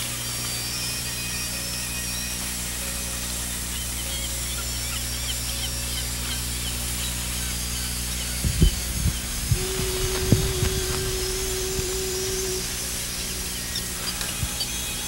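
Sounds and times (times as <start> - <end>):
low hum and hiss: 0.0 - 15.0
faint bird chirps: 0.6 - 15.0
low thumps: 8.4 - 14.6.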